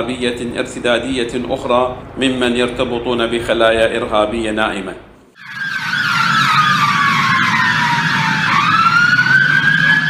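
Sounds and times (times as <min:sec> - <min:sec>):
low traffic rumble: 0:00.0 - 0:10.0
fast warbling siren: 0:05.4 - 0:10.0
siren wailing: 0:05.4 - 0:10.0.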